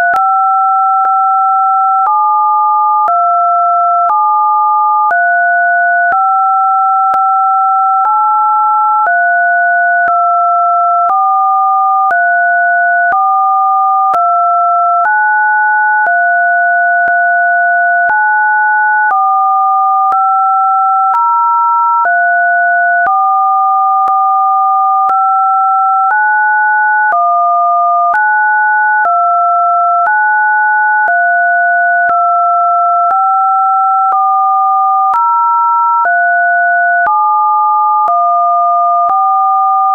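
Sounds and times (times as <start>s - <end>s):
electronic sine tones: 0.0s - 21.3s, 22.0s - 39.9s
clicks at pitch changes: 14.1s - 14.3s, 16.0s - 18.2s, 24.0s - 24.3s, 31.0s - 32.3s.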